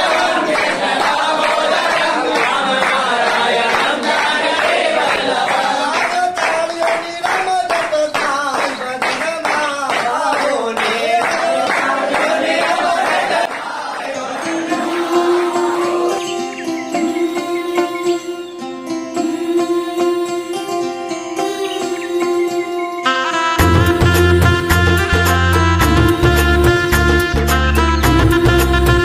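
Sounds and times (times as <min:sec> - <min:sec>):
men singing together: 0:00.0 - 0:06.5, 0:09.8 - 0:16.3
hands clapping in a beat: 0:00.0 - 0:15.6
held instrumental tone: 0:14.2 - 0:29.0.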